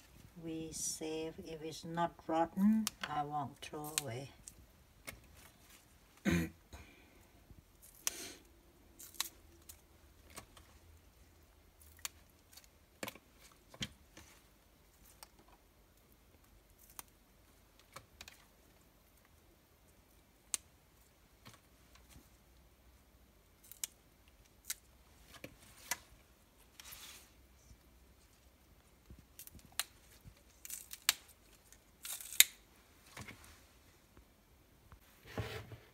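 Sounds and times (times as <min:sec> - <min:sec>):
plant stems snapped by hand: 0:32.0 - 0:32.6.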